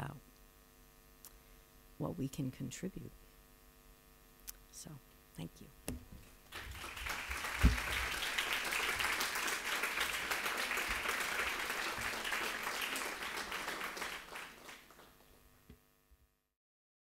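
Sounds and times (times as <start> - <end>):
single thump: 5.9 - 6.3, 7.6 - 7.9
audience applauding: 6.5 - 15.4.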